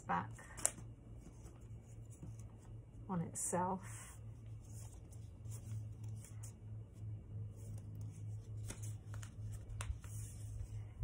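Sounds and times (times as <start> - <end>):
paper rustling: 7.5 - 10.8.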